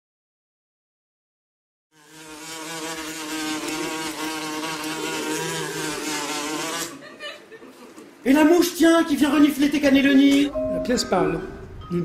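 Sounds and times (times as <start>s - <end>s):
fly buzzing: 1.9s - 7.0s.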